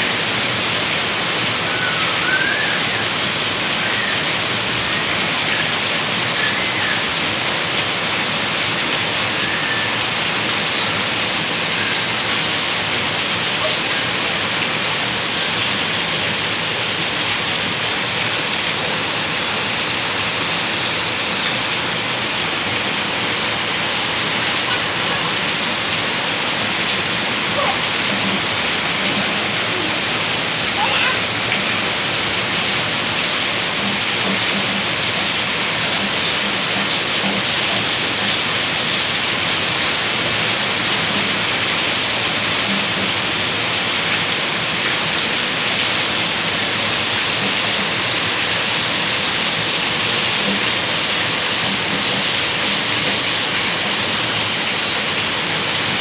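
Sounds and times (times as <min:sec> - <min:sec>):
rain pouring onto wet concrete: 0:00.0 - 0:56.0.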